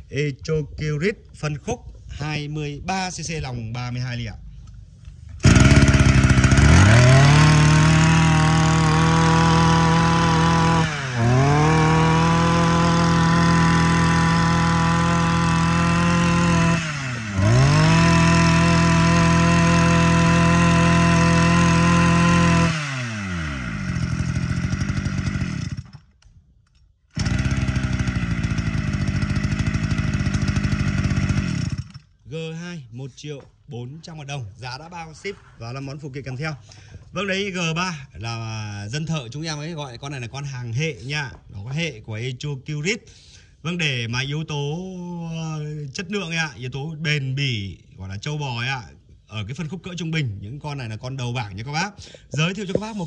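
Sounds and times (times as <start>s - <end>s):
brush cutter engine running: 5.4s - 26.1s, 27.1s - 32.1s.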